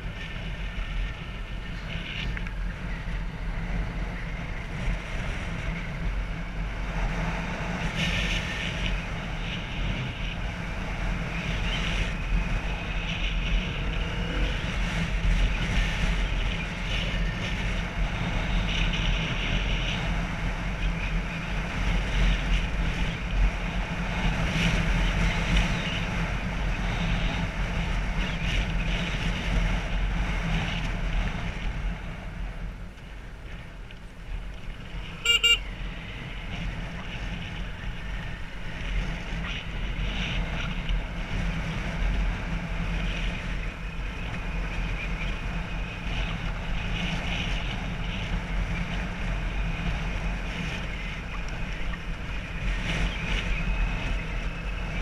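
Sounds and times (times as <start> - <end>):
wind rushing over microphone: 0.0 - 55.0
motorbike engine running: 34.9 - 55.0
short horn beep: 35.2 - 35.7.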